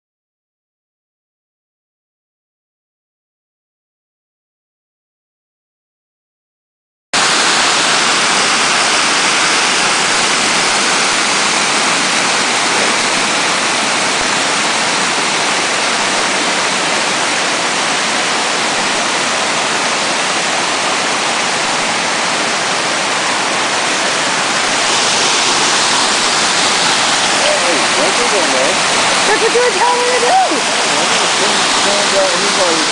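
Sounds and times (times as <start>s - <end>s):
waterfall rushing: 7.2s - 32.9s.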